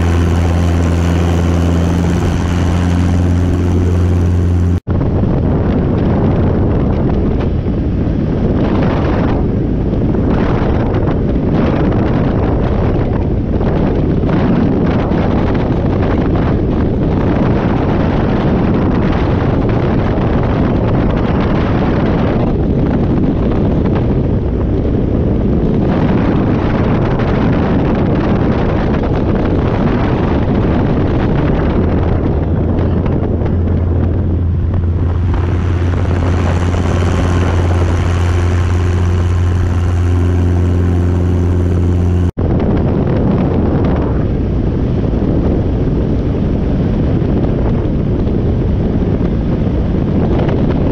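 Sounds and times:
helicopter engine drone: 0.0s - 6.6s, 30.7s - 42.6s
heavy wind buffeting: 0.0s - 50.9s.

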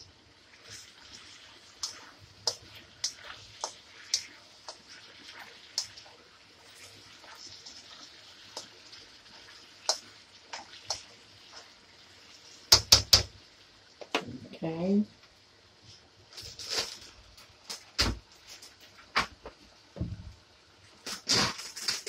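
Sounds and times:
faint sizzle: 0.0s - 22.0s
spatula scraping and knocking wok: 0.6s - 6.1s, 6.7s - 11.8s.

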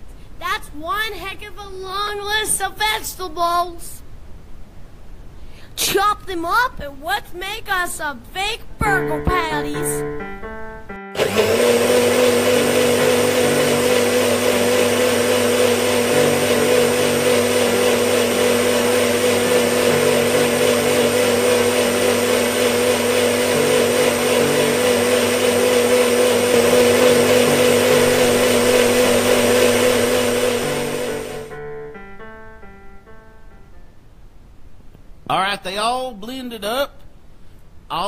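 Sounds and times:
electric blender whirring: 11.2s - 31.5s.

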